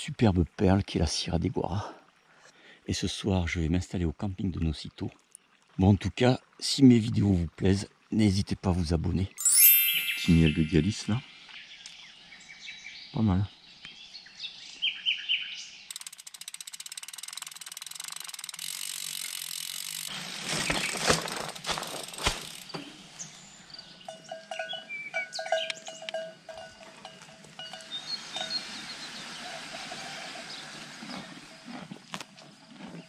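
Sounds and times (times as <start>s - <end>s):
bird chirps: 9.4s - 15.9s, 23.2s - 26.2s
freewheel hub ticking: 15.9s - 20.1s
bike knocking over rocks: 20.2s - 23.0s.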